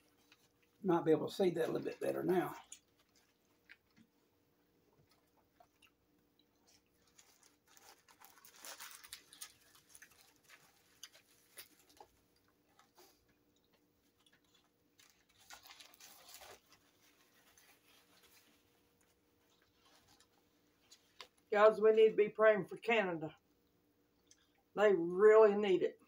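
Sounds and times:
paper wrapper crinkling: 0:01.6 - 0:04.0, 0:06.6 - 0:21.5
chewing: 0:02.6 - 0:04.2, 0:04.9 - 0:16.9.

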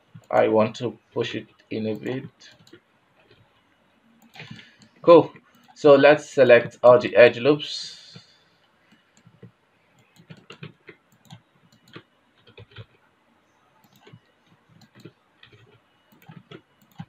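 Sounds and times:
mouse and keyboard clicks: 0:08.9 - 0:12.9, 0:13.8 - 0:17.0.

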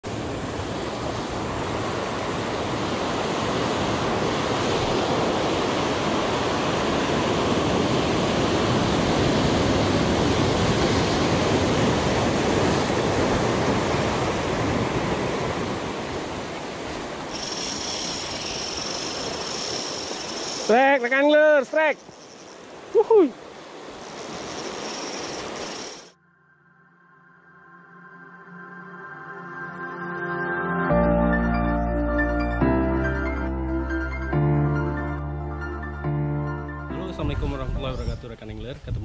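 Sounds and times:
surf breaking on rocks: 0:03.4 - 0:26.1
fishing reel drag buzzing: 0:17.2 - 0:26.2.

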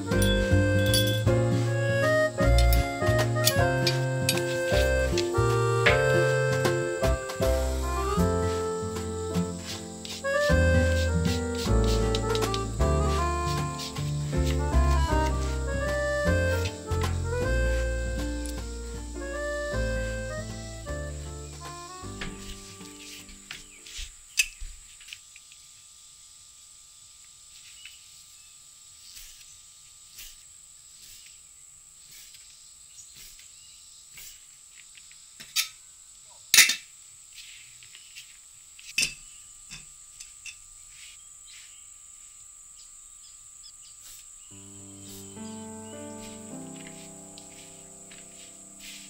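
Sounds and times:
music: 0:00.0 - 0:24.0, 0:44.5 - 0:49.0
insects chorus: 0:00.0 - 0:49.0.

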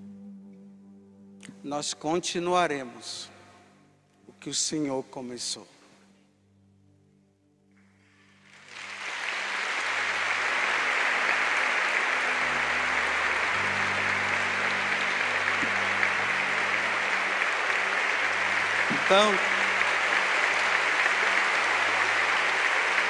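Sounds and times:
crowd applauding: 0:08.1 - 0:23.0.

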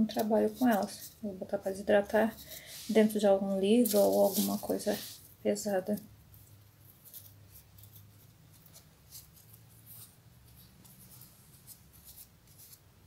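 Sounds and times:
crackling rustles of leaves: 0:02.4 - 0:10.1.

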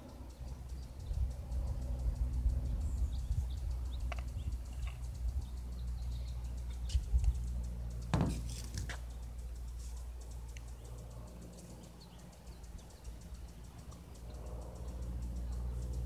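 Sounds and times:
low steady hum: 0:00.0 - 0:16.0
faint clicks: 0:08.9 - 0:16.0.

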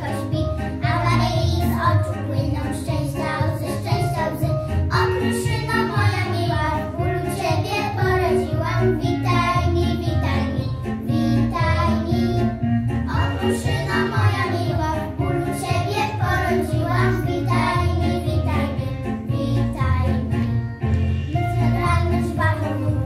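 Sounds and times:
instrumental backing with bass line: 0:00.0 - 0:23.0
girls singing together: 0:13.1 - 0:18.8.

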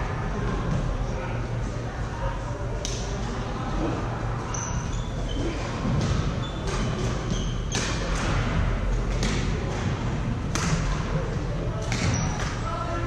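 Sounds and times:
shoes squeaking on court floor: 0:04.5 - 0:07.8.

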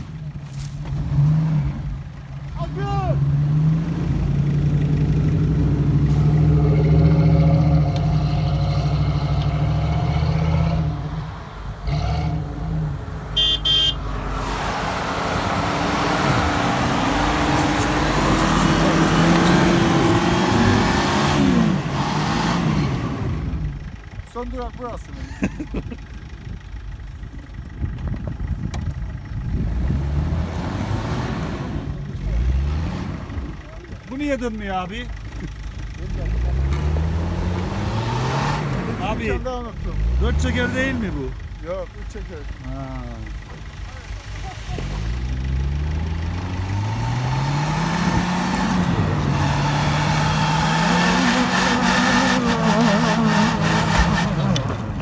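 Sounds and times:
suv engine revving under load: 0:03.2 - 0:24.0, 0:28.5 - 0:33.7, 0:35.2 - 0:55.0.

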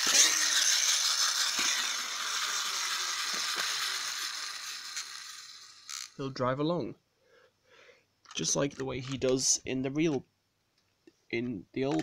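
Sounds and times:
toy car motor whirring: 0:00.0 - 0:06.2.

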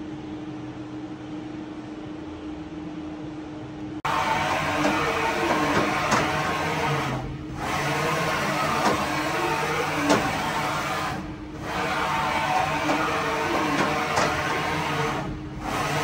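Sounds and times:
machine table traversing with whine: 0:04.0 - 0:16.0.

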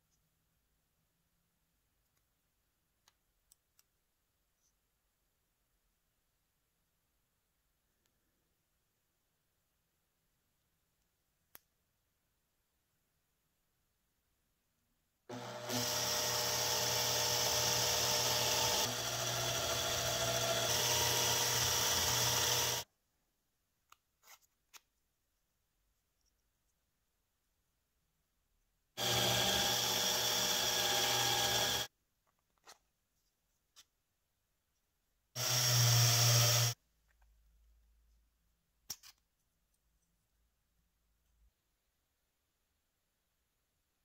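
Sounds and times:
cordless drill running: 0:15.3 - 0:22.9, 0:29.0 - 0:31.9, 0:35.4 - 0:36.8.

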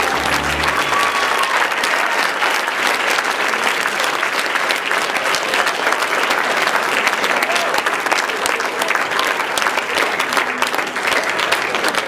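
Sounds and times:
show music: 0:00.0 - 0:02.2
audience applauding: 0:00.0 - 0:12.0.

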